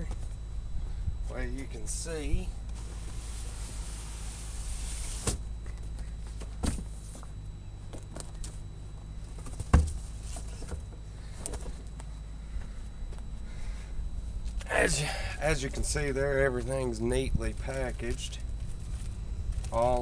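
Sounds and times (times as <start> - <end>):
cardboard box scraping hiss: 2.8 - 5.5
dull thump: 5.2 - 5.5, 6.6 - 7.0, 9.4 - 10.0
cardboard rustling and knocking: 9.4 - 10.9.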